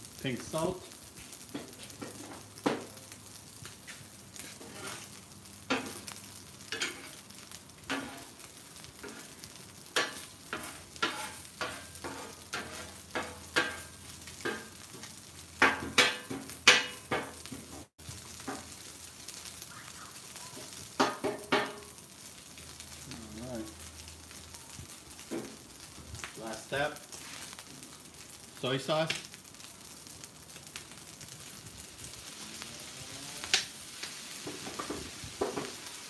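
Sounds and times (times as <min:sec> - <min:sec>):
steady sizzle: 0:00.0 - 0:36.0
metal spatulas scraping griddle: 0:04.4 - 0:06.0, 0:06.7 - 0:07.2, 0:07.9 - 0:08.3, 0:09.0 - 0:09.4, 0:10.0 - 0:14.7.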